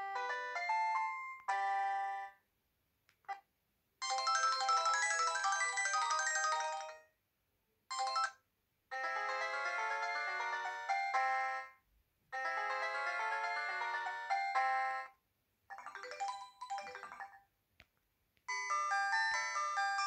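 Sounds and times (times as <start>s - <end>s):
polyphonic ringtones from phone speaker: 15.7s - 17.5s.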